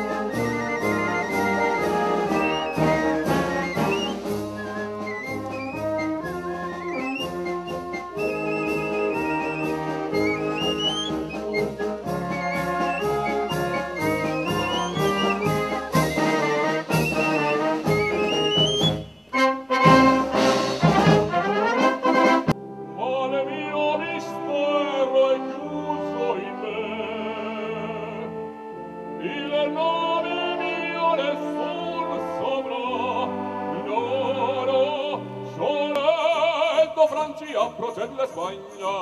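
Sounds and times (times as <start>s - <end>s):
military wind band playing: 0.0s - 23.0s
man singing with wide vibrato: 23.0s - 28.4s, 29.2s - 39.0s.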